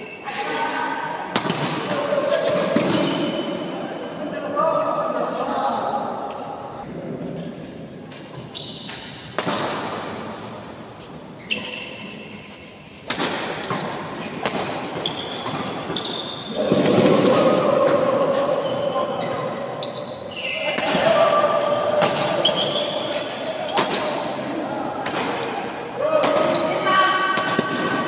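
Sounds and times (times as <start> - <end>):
loud voices: 0.0 - 7.5, 16.0 - 28.0
shoes squeaking on court: 7.4 - 9.7, 10.3 - 13.0, 13.6 - 17.1, 18.4 - 20.8, 21.6 - 24.5
racket striking shuttlecock: 8.9 - 10.2, 13.0 - 16.0.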